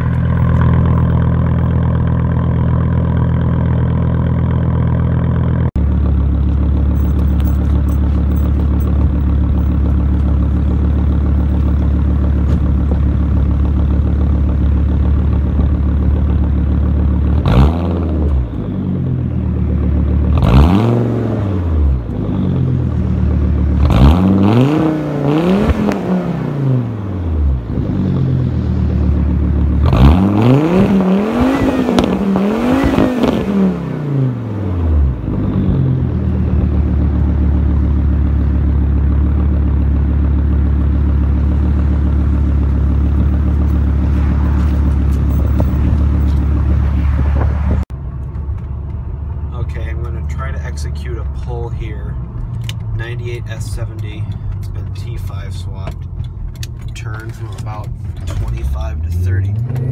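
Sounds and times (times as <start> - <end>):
car exhaust idling: 0.0 - 20.8, 21.5 - 24.5, 25.2 - 59.9.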